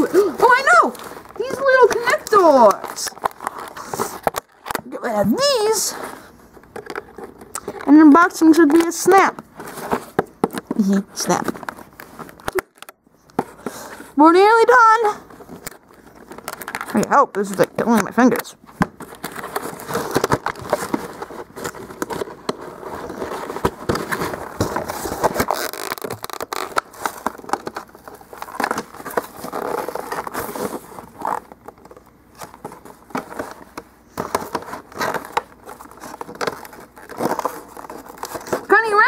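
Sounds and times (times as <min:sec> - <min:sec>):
packaging being opened by hand: 0:00.0 - 0:05.7, 0:14.7 - 0:39.0.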